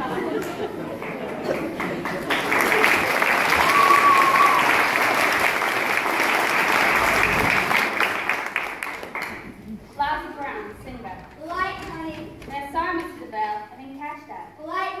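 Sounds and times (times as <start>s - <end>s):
audience clapping: 0.0s - 9.8s.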